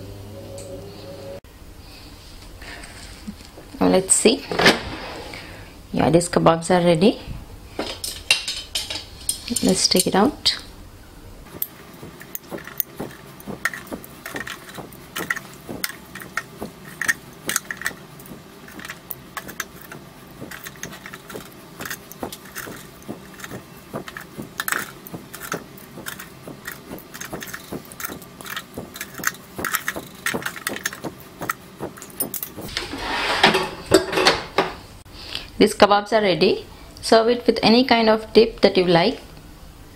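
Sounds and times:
metal tongs clinking on wire basket: 7.8 - 10.6, 11.5 - 32.7.

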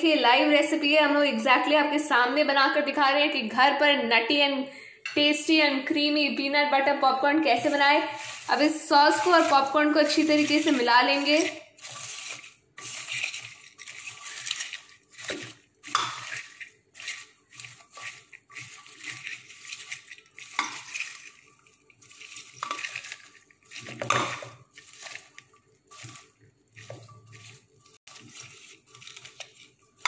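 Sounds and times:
spatula stirring in metal pot: 7.4 - 30.0.

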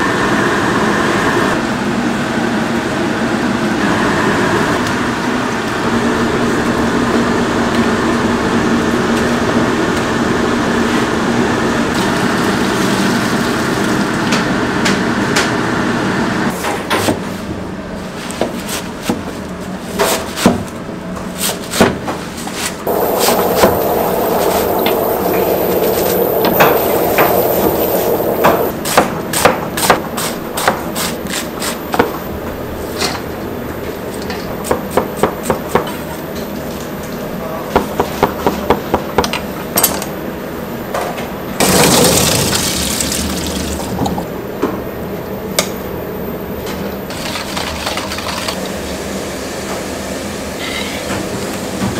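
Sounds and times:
water boiling in a pot: 11.9 - 14.7, 22.9 - 28.7, 41.6 - 44.3
steady background noise: 22.2 - 51.9.

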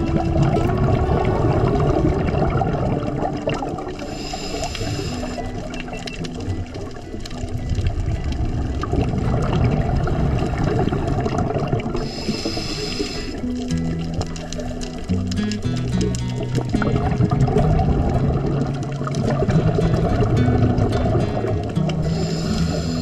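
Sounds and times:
underwater exhaled bubbles: 0.0 - 23.0
regulator inhalation hiss: 4.0 - 5.7, 12.0 - 13.5, 22.0 - 23.0.

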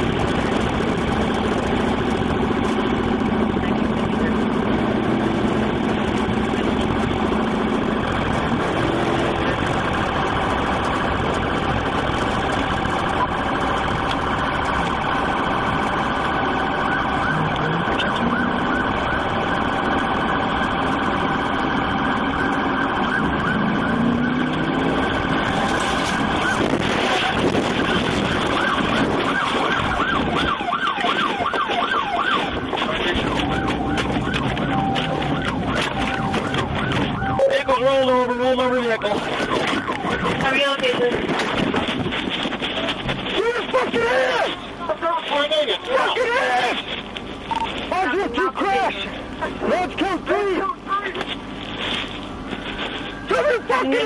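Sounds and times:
warbling siren tone: 0.0 - 46.8
car engine and road noise: 0.0 - 54.0
police siren: 0.0 - 54.0.

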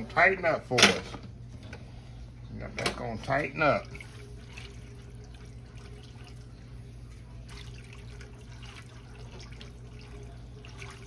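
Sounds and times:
gravy bubbling: 3.6 - 11.0.

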